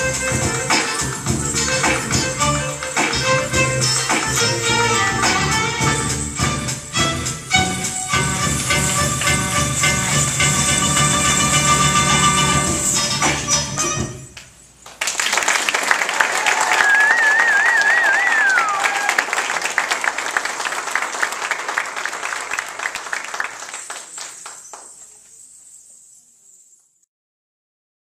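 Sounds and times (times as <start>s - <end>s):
audience clapping and cheering: 14.8s - 24.9s.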